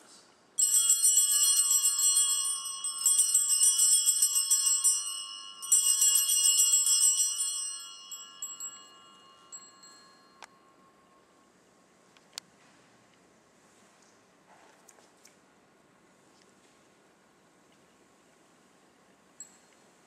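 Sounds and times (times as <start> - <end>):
small bells jingling: 0.6 - 11.2.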